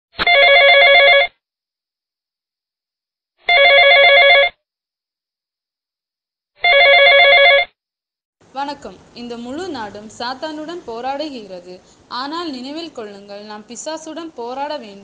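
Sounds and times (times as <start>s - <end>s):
telephone ringing: 0.2s - 1.3s, 3.5s - 4.6s, 6.6s - 7.7s.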